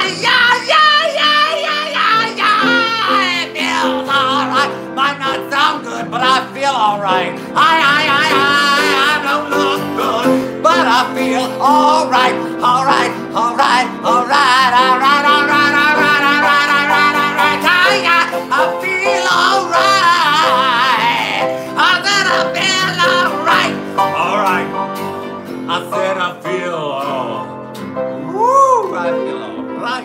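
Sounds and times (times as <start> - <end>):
person singing with vibrato: 0.0 - 25.0
acoustic guitar: 0.0 - 30.0
piano: 0.0 - 30.0.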